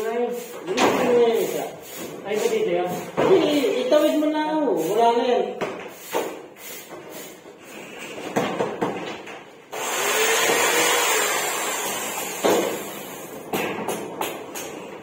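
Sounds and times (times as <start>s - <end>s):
electric drill running: 9.7s - 13.2s.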